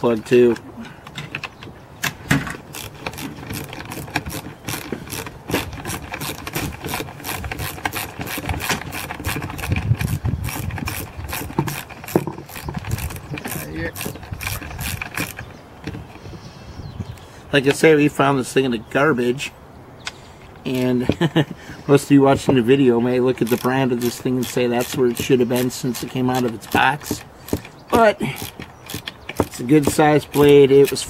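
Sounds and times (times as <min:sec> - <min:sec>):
ratchet wrench clicking: 0:02.7 - 0:15.4, 0:23.4 - 0:31.0
tool knocking: 0:10.8 - 0:16.1, 0:28.4 - 0:30.6.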